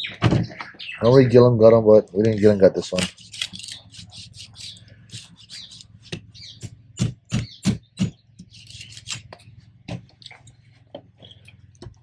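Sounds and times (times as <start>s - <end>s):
knife scraping: 2.4s - 6.2s, 8.4s - 9.4s
knife crunching through fish: 2.9s - 6.2s, 8.0s - 9.3s.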